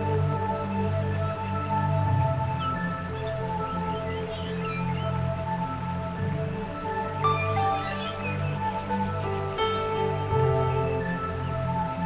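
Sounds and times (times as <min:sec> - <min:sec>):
music with long held notes: 0:00.0 - 0:12.0.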